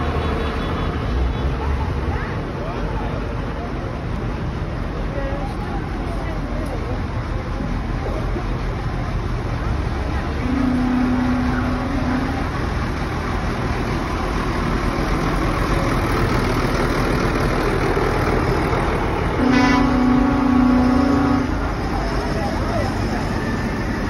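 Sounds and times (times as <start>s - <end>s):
tractor diesel engines rumbling: 0.0s - 24.0s
vehicle horn: 10.4s - 12.4s, 19.4s - 21.7s.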